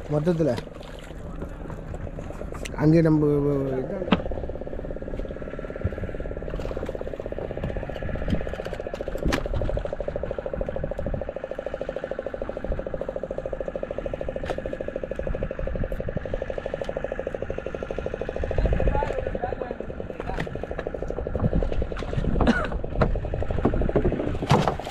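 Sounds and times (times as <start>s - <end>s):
boat engine running: 0.0s - 24.9s
sharp knocks in wooden boat: 4.0s - 4.4s, 22.0s - 24.9s.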